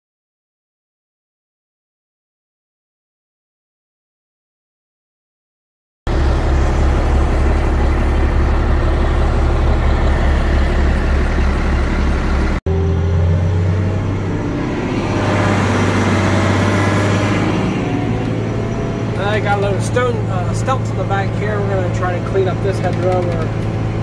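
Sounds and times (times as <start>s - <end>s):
diesel engine throbbing: 6.1s - 24.0s
truck engine drone: 6.1s - 24.0s.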